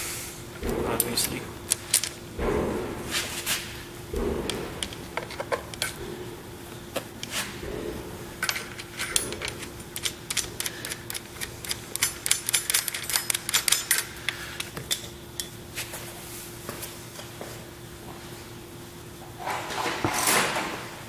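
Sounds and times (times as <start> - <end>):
screwdriver clicking against spring: 8.5 - 15.5.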